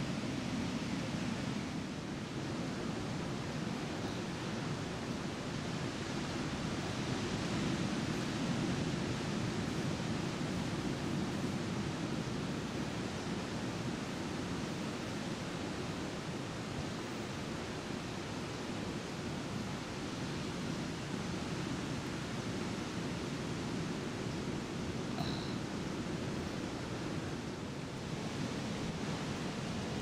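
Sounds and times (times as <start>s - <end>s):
steady rushing noise: 0.0s - 30.0s.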